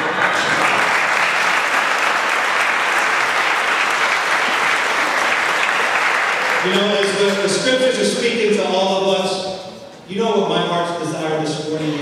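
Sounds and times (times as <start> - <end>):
congregation applauding: 0.0 - 8.0.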